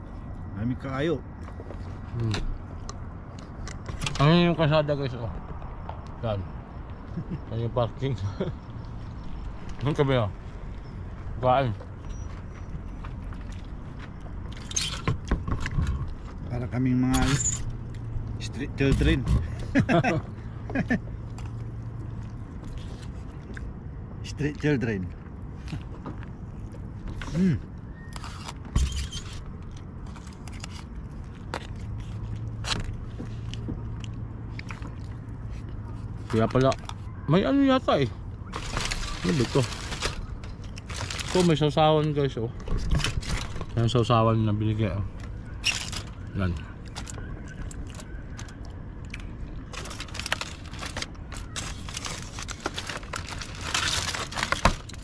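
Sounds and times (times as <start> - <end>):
chewing food: 21.2 - 23.8, 29.6 - 37.0
packaging crackling: 38.5 - 41.6, 49.2 - 55.0.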